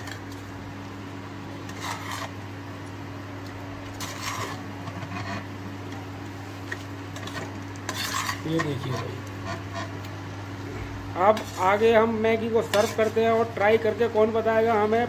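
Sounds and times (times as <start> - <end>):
steady low hum: 0.0 - 15.0
wooden spatula scraping a pan: 1.6 - 2.4, 3.9 - 5.6, 7.1 - 10.0, 11.2 - 13.6.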